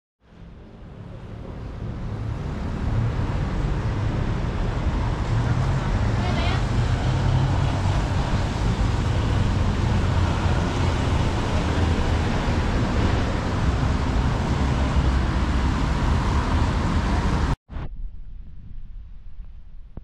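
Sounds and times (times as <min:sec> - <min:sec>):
city street traffic: 0:00.2 - 0:17.6
wind buffeting microphone: 0:01.2 - 0:20.0
low hum: 0:17.7 - 0:20.0.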